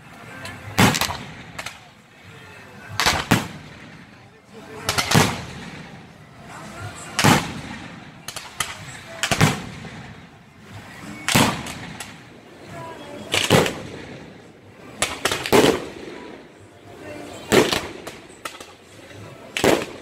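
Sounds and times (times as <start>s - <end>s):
crackling firework trails: 0.0s - 20.0s
sharp cracks: 0.4s - 1.9s, 2.9s - 4.2s, 4.8s - 6.0s, 7.0s - 10.2s, 11.2s - 12.3s, 13.3s - 14.2s, 14.9s - 16.4s, 17.5s - 18.9s, 19.5s - 20.0s
fireworks bangs: 0.6s - 1.9s, 2.9s - 10.4s, 11.1s - 12.4s, 13.3s - 20.0s.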